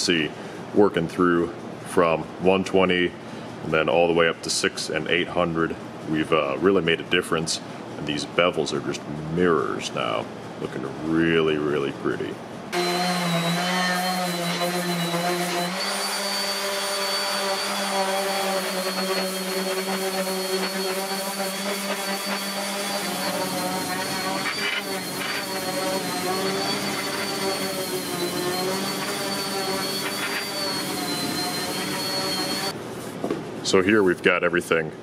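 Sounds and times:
orbital sander on wood: 12.7 - 32.8.

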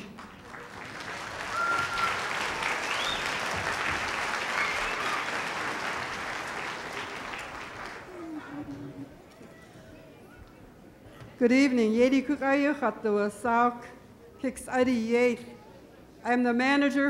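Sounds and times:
audience applauding: 0.0 - 9.1.

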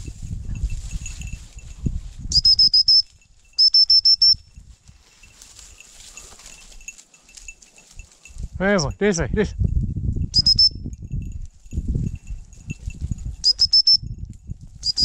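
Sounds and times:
rustling through dry brush: 0.0 - 8.6
dog whistle pips: 2.3 - 4.4, 10.4 - 10.8, 13.4 - 14.0.

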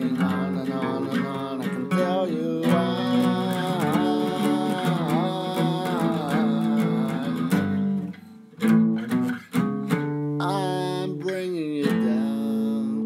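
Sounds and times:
man singing held note: 0.0 - 7.8, 10.4 - 13.0
acoustic guitar strumming: 0.0 - 13.0.

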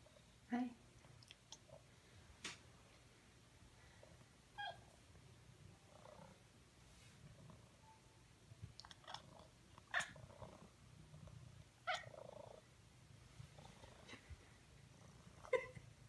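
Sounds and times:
cat chittering: 8.8 - 10.2, 11.9 - 12.2.

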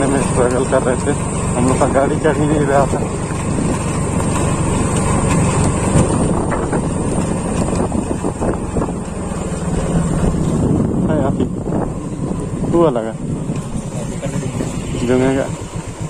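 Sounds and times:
vehicle engine running: 0.0 - 16.0
wind rushing over microphone: 5.4 - 15.4.

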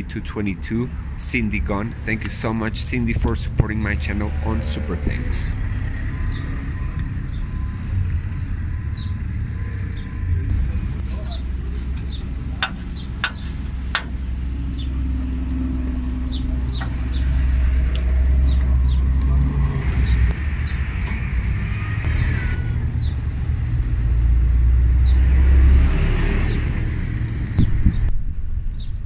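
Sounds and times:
street traffic rumble: 0.0 - 29.0
bird chirps: 5.5 - 7.9, 8.8 - 10.4, 11.1 - 13.5.

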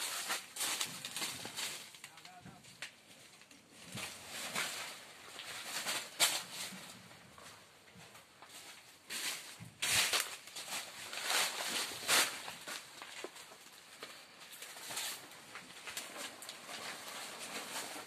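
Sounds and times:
footsteps crunching dry leaves: 0.0 - 2.0, 8.4 - 17.8
sharp leaf crackles: 0.0 - 7.5, 8.5 - 18.0.

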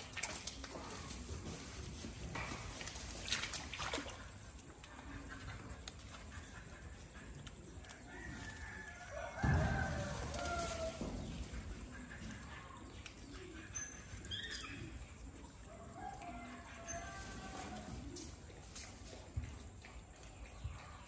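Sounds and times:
water trickling from a pipe: 0.0 - 1.5, 2.3 - 5.1
rooster crowing: 8.1 - 11.0, 15.9 - 18.0.

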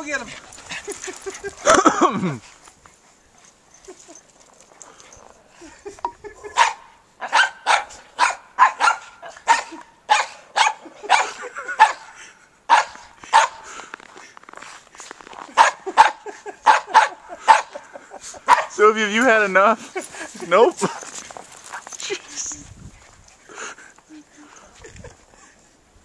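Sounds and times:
small dogs barking: 6.4 - 12.1, 12.7 - 13.7, 15.5 - 18.8.

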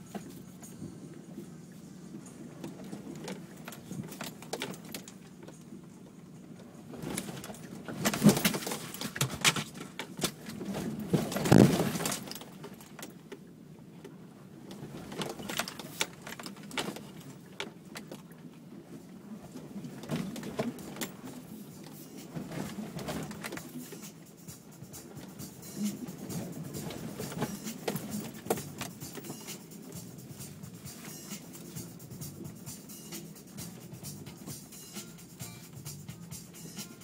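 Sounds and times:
vehicle cabin rattling and knocking: 2.5 - 5.8, 7.0 - 13.3, 14.7 - 18.2, 19.6 - 21.4, 22.3 - 32.8.

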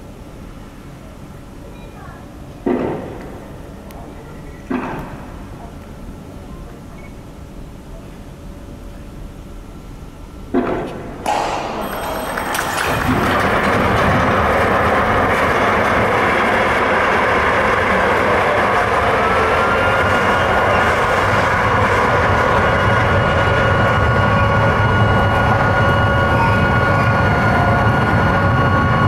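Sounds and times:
sharp bangs: 10.7 - 18.3.

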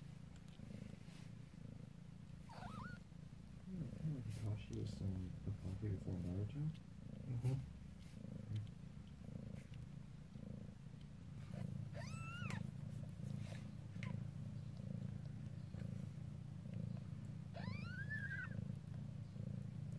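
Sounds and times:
cat purring: 0.0 - 19.9
kitten squeaks: 2.5 - 3.0, 11.9 - 12.7, 17.5 - 18.6.

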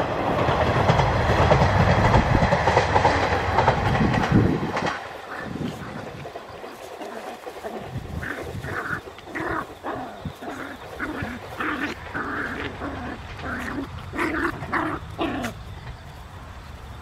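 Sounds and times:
puppies growling and yipping: 5.2 - 15.9.

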